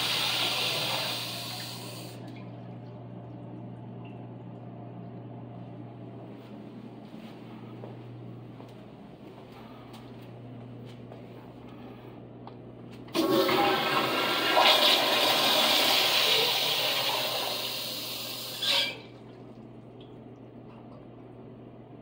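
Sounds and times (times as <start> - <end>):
toilet flushing: 0.0 - 5.1, 13.1 - 22.0.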